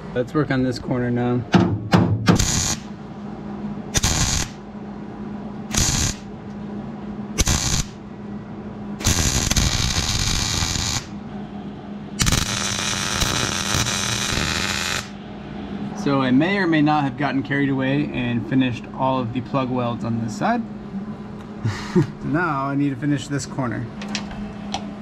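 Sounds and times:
mig welder bursts: 2.3 - 2.9, 3.9 - 4.6, 5.7 - 6.3, 7.4 - 8.0, 9.0 - 11.2, 12.2 - 15.2.

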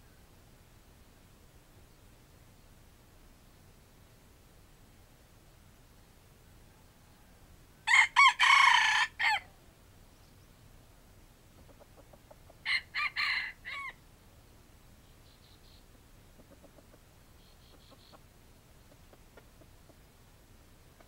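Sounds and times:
rooster crowing: 7.0 - 9.5, 12.6 - 14.0
faint clucks: 11.5 - 12.6, 15.4 - 20.1.

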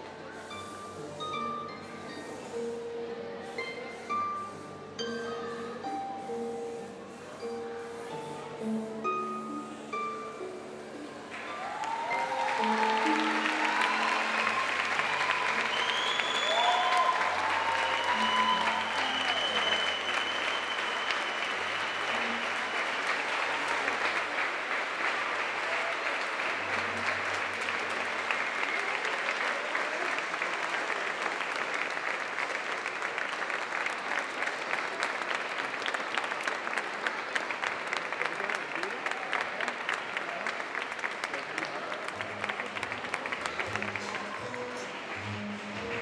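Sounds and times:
music playing: 0.1 - 24.4, 42.2 - 46.0
large audience applauding: 9.3 - 46.0.

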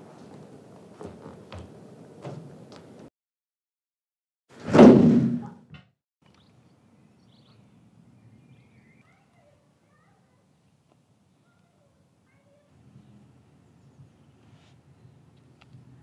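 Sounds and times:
loud heavy thud: 4.6 - 5.6.

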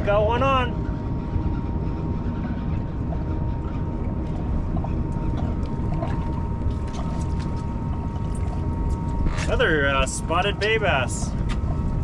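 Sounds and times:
thin steady hum: 0.0 - 12.0
wind rumbling on microphone: 0.0 - 12.0.

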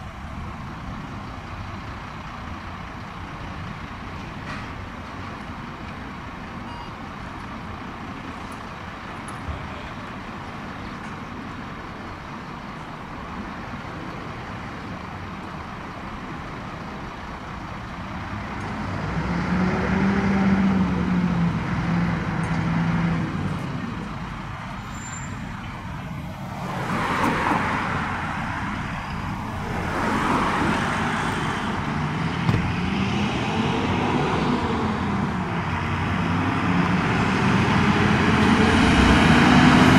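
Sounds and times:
diesel truck engine: 0.0 - 39.9
truck accelerating past: 18.2 - 39.9.

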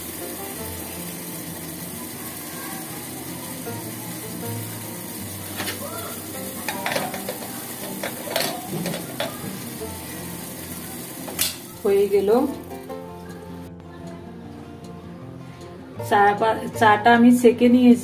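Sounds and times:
pot bubbling on gas burner: 0.0 - 13.0.

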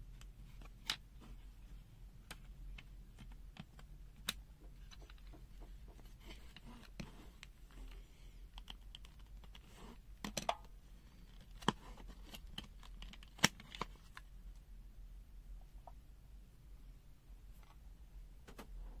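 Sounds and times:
plastic parts clicking: 2.3 - 14.3.

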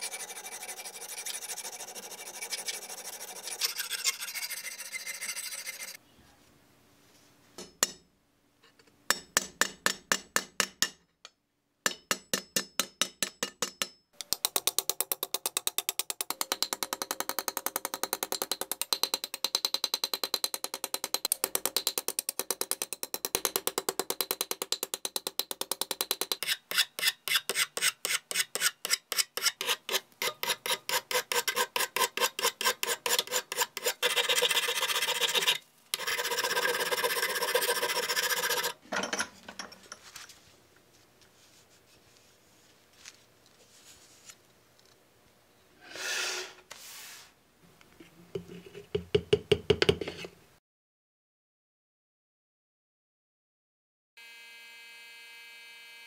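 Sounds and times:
file rasping on steel: 0.0 - 6.0, 25.8 - 38.8
hammer tapping on metal: 7.6 - 8.1, 9.1 - 26.4.

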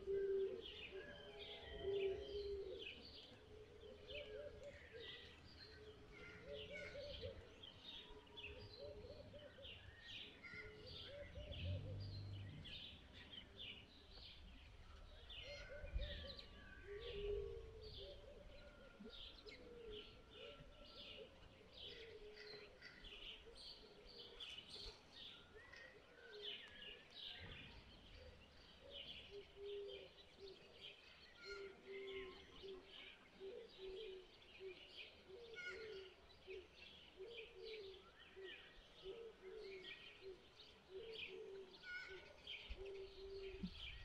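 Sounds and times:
dove cooing: 0.0 - 7.5, 8.4 - 9.8, 10.5 - 12.2, 15.4 - 24.4, 28.2 - 30.8, 31.4 - 43.9
small birds chirping: 18.1 - 44.0.

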